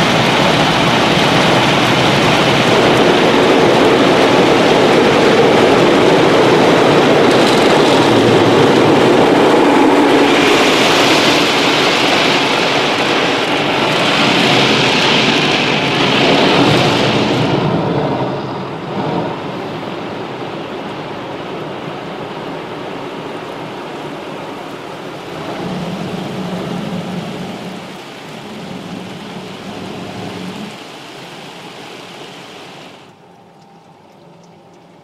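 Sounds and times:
running water: 0:24.1 - 0:35.0.

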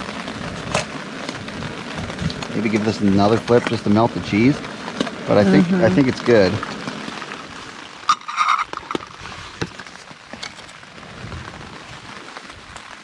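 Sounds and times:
faint steady hiss: 0:00.0 - 0:13.0
pot lid scraping: 0:08.1 - 0:10.7.

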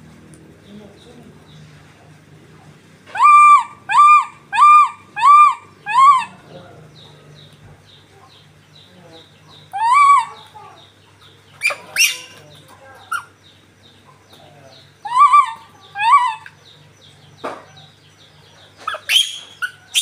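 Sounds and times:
monkey high-pitched calls: 0:03.1 - 0:06.5, 0:09.5 - 0:13.5, 0:15.0 - 0:16.8, 0:18.7 - 0:20.0.

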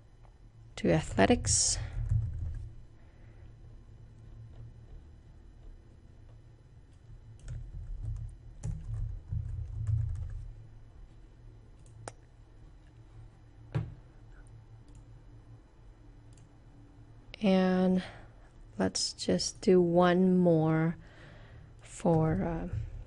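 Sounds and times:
computer keyboard typing: 0:02.0 - 0:02.7, 0:07.0 - 0:10.5
computer mouse clicks: 0:14.4 - 0:15.1, 0:16.3 - 0:16.5.

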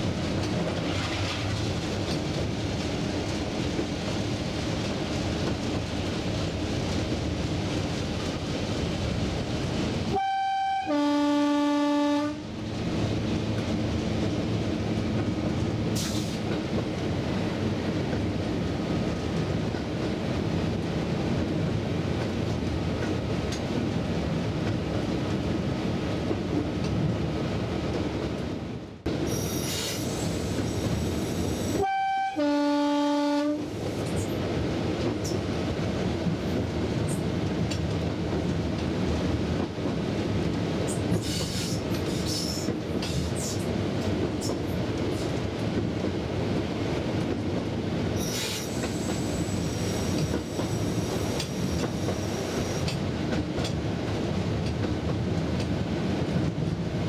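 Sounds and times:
locomotive running on track: 0:00.0 - 0:57.0
locomotive two-tone horn: 0:10.1 - 0:12.5, 0:31.8 - 0:33.7.

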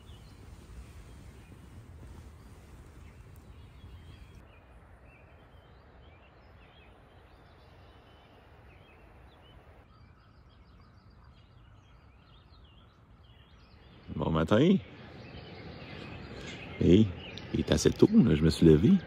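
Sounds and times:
distant rapids rushing: 0:00.0 - 0:09.9
birds chirping and whistling: 0:00.0 - 0:19.0.

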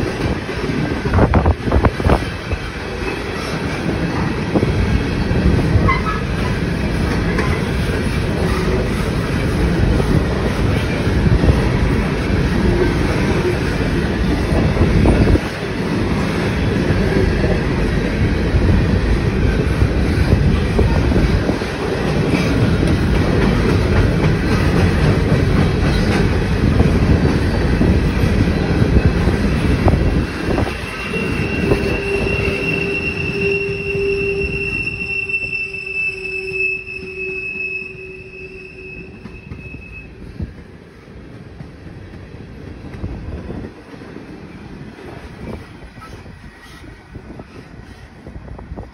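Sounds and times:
freight train rumbling past: 0:00.0 - 0:48.9
high-pitched wheel squeal: 0:30.6 - 0:40.4.

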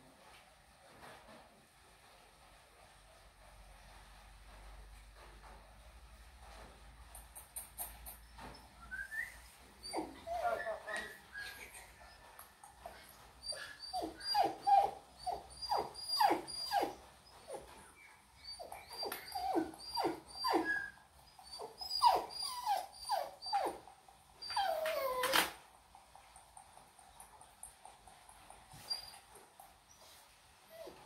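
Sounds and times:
puppies whimpering and crying: 0:13.4 - 0:16.9, 0:18.4 - 0:23.8, 0:24.4 - 0:25.5.

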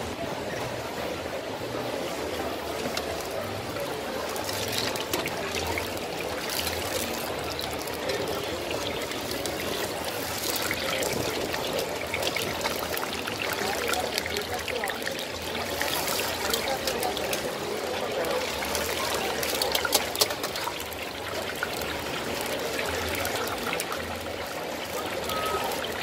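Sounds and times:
deep-frying sizzling and bubbling: 0:01.4 - 0:26.0.

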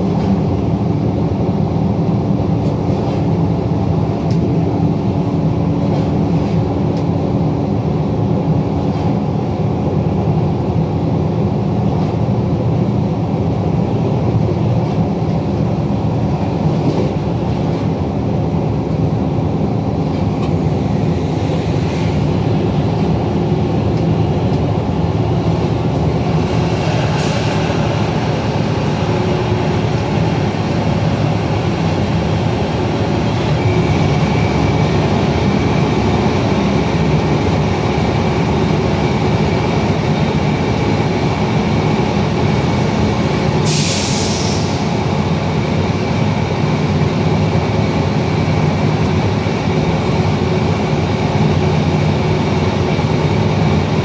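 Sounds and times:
train wheels rumbling: 0:00.0 - 0:54.0.

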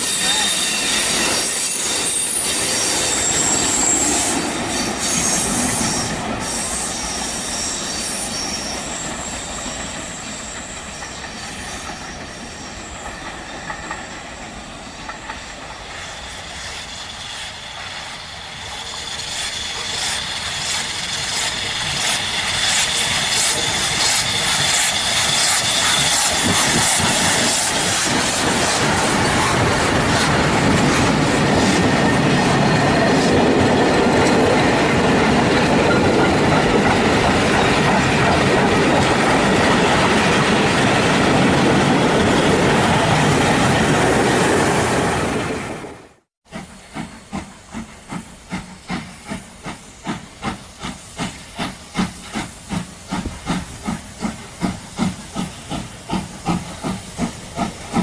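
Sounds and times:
high wheel squeal: 0:00.0 - 0:38.4
train running on rails: 0:00.0 - 0:58.0.

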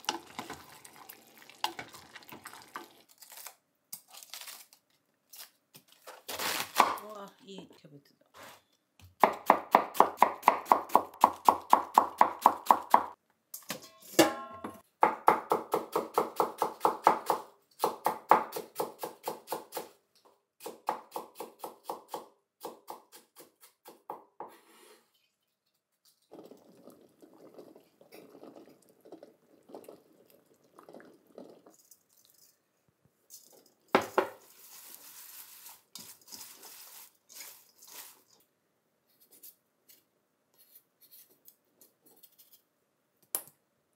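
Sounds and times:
cabbage rustling in steel bowl: 0:34.3 - 0:38.4.

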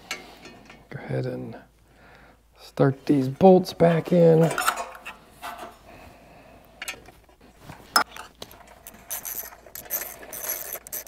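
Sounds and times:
metal bolts clinking: 0:04.4 - 0:05.1.

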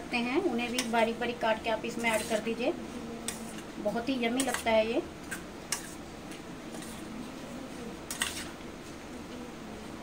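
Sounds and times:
spoon stirring salad in bowl: 0:00.6 - 0:01.2, 0:01.8 - 0:02.6, 0:03.2 - 0:07.1, 0:08.0 - 0:09.0.

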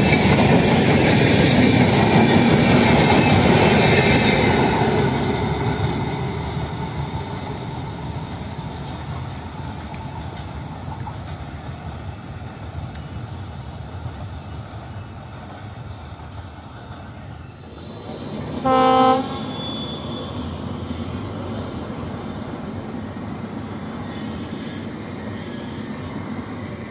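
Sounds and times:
train rumbling: 0:00.0 - 0:26.9
locomotive horn blast: 0:18.6 - 0:19.9.

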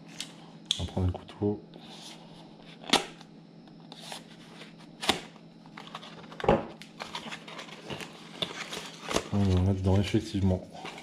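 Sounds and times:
paper scraping and rustling: 0:07.0 - 0:10.2, 0:10.8 - 0:11.0.

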